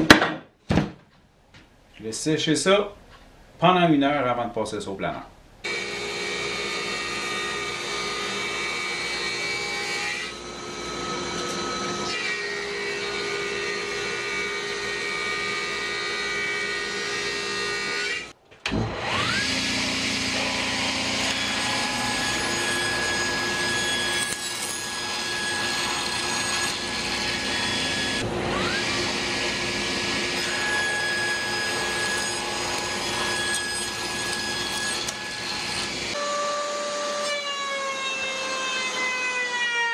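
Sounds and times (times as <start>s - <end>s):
table saw cutting board: 5.7s - 39.9s
table saw spinning up: 18.7s - 36.2s
thickness planer running: 18.7s - 36.2s
dust collector running: 18.9s - 36.2s.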